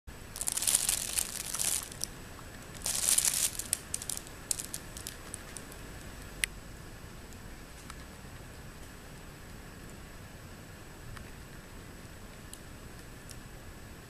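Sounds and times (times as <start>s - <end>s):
nylon fabric crinkling: 0.3s - 2.1s, 2.8s - 5.7s.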